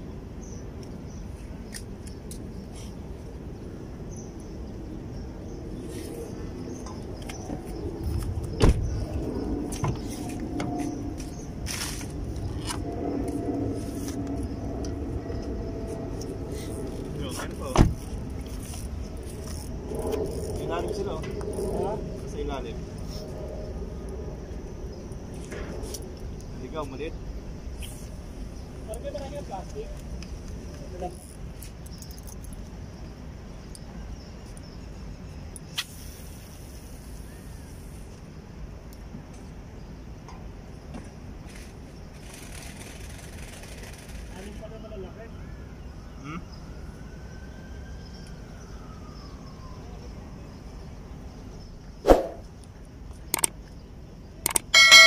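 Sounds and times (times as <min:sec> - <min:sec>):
low background rumble: 0:03.0 - 0:30.9
faint hum drifting in pitch: 0:06.2 - 0:25.3, 0:54.5 - 0:55.0
sharp click: 0:53.3 - 0:53.6, 0:54.4 - 0:55.0.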